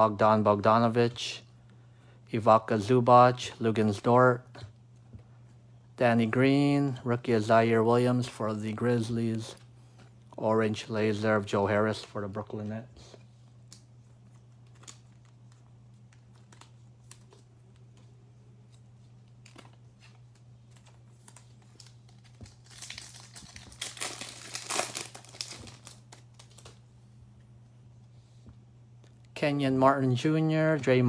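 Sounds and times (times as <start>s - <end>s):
steady low hum: 0.0s - 31.0s
foil pack crinkling and tearing: 19.4s - 26.8s.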